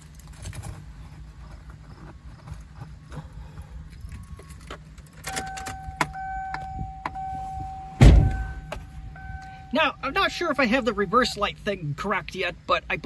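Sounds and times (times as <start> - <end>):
car keys jangling: 0.0 - 11.3
electronic warning tone: 5.3 - 11.6
heavy thump: 7.9 - 9.0.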